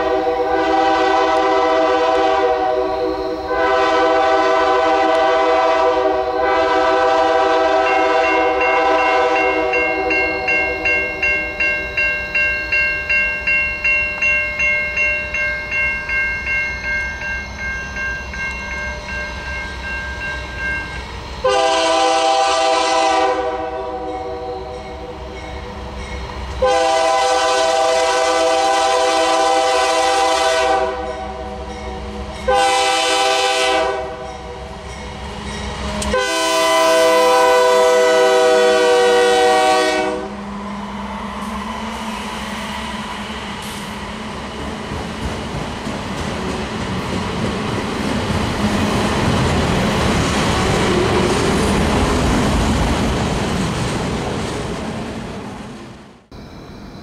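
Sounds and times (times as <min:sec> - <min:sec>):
locomotive horn blasts: 0:00.0 - 0:10.6, 0:21.4 - 0:24.8, 0:26.6 - 0:34.3, 0:35.9 - 0:40.4
crossing warning bell ringing: 0:00.0 - 0:22.4, 0:23.0 - 0:40.9, 0:56.3 - 0:57.0
low rumble of train: 0:00.0 - 0:57.0.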